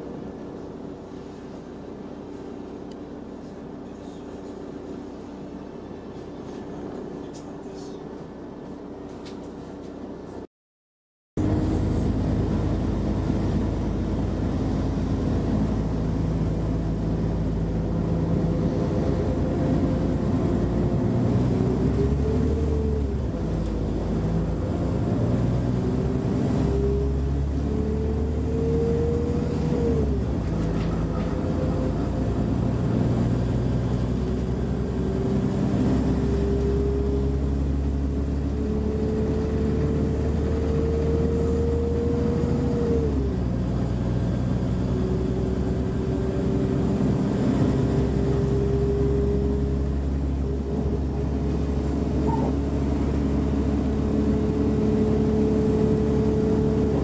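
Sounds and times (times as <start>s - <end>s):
diesel engine drone: 0.0s - 10.5s, 11.4s - 57.0s
drivetrain whine: 11.4s - 57.0s.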